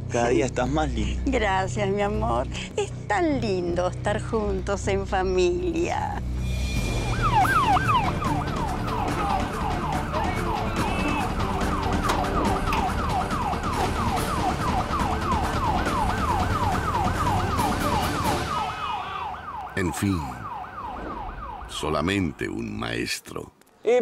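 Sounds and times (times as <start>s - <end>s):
police siren yelping: 6.9s - 22.1s.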